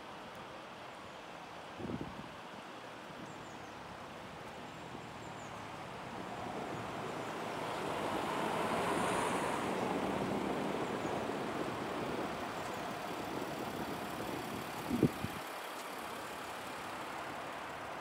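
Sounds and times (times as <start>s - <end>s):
vehicle passing: 5.8s - 15.4s.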